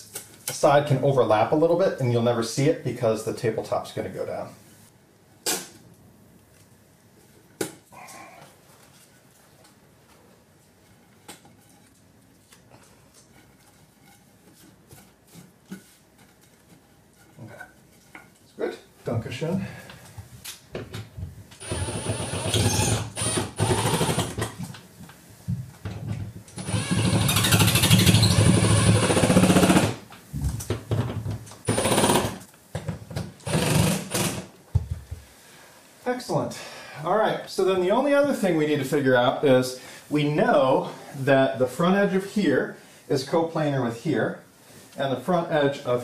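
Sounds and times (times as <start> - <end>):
cordless drill driving screws: 21.6 - 24.4, 26.6 - 29.9, 31.7 - 32.4, 33.4 - 34.5.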